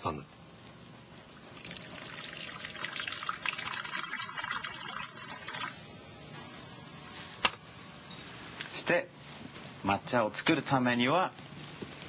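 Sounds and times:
water pouring into ceramic bowl: 1.3 - 5.8.

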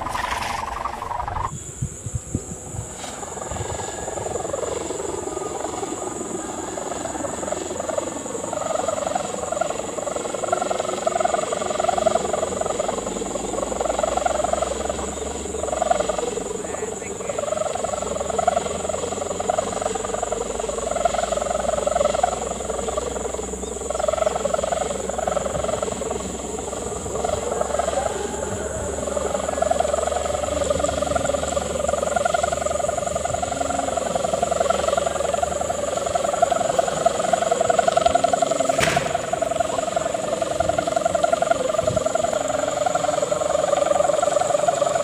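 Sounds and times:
kite hummer droning in wind: 0.0 - 45.0
sharp click: 38.7 - 39.6.

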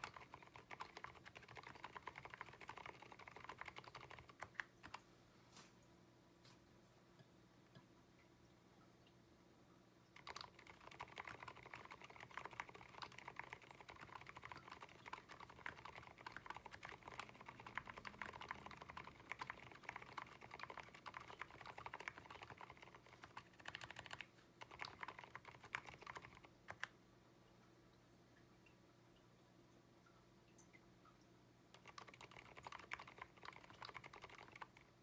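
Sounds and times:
fast typing on mechanical keyboard: 0.0 - 5.0, 10.2 - 26.9, 31.7 - 35.0.

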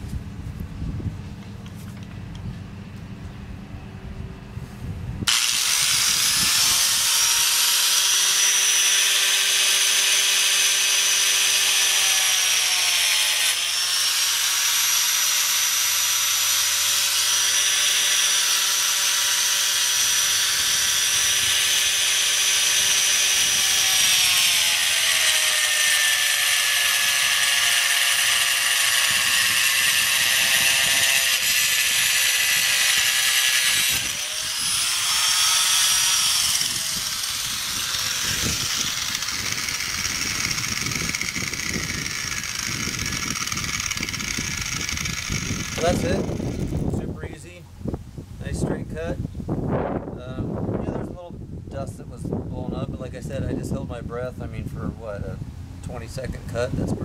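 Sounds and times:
angle grinder cutting board: 5.3 - 47.1.

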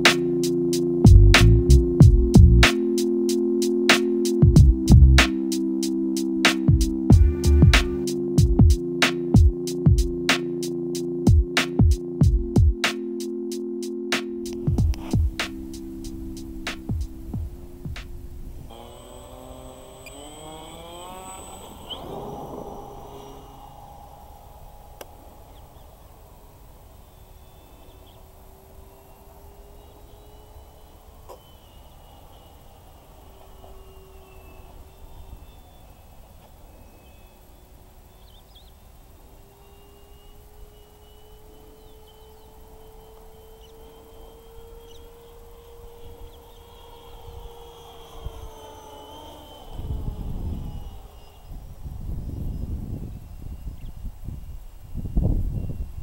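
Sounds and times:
model plane motor drone: 0.0 - 12.2, 12.8 - 56.0
loud low rumble: 1.1 - 2.6, 4.6 - 5.2
wind rumble on microphone: 1.1 - 2.6, 42.3 - 56.0.

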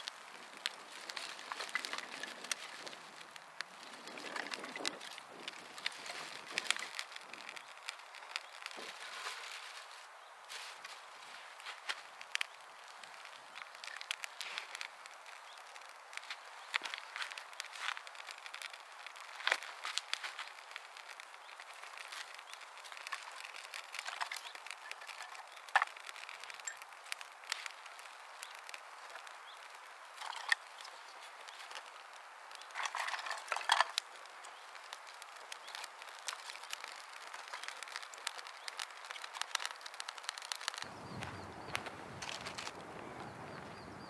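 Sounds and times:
small crackles and rustles: 0.0 - 44.0
sharp snaps: 11.6 - 42.8.

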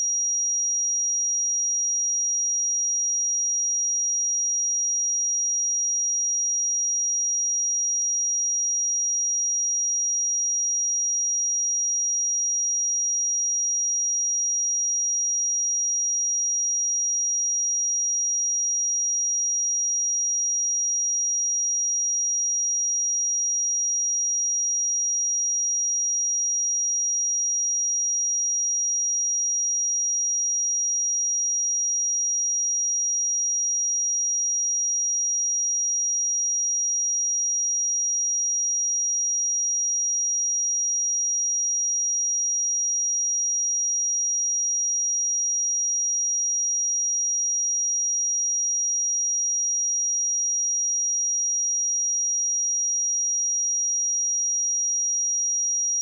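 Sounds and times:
high-pitched sine test tone: 0.0 - 0.2, 55.7 - 56.0.

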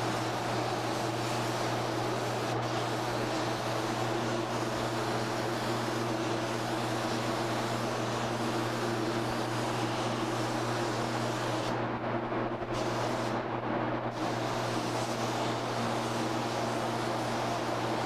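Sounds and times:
spray gun air hiss: 0.0 - 11.8, 12.7 - 13.4, 14.1 - 18.0.

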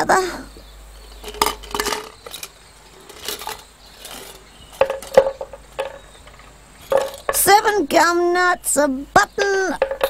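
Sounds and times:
small objects dropping on floor: 1.2 - 7.4
objects rattling in piggy bank: 1.2 - 7.6.

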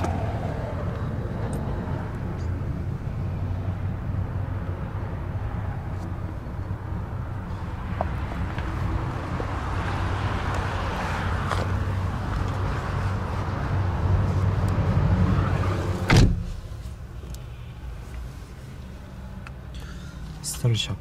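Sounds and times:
outdoor noise: 0.0 - 21.0
car door shutting with a thud: 16.0 - 16.7.

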